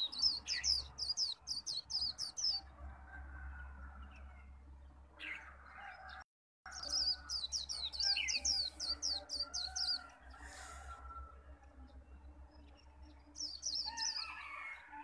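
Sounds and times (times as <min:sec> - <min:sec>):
bird singing high falling chirps: 0:06.7 - 0:10.1.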